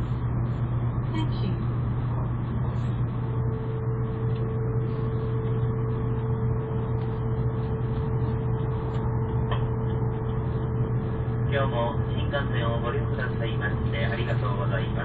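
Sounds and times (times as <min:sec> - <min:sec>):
train cabin rumble and hiss: 0:11.5 - 0:15.0.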